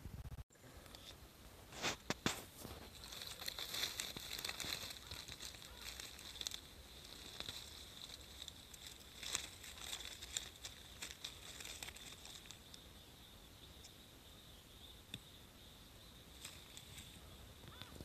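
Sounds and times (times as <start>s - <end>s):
dry leaves crackling and rustling: 2.0s - 12.8s, 16.3s - 18.0s.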